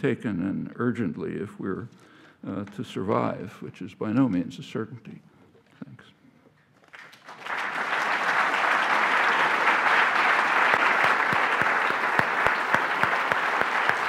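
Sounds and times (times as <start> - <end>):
audience applauding: 6.9 - 14.0.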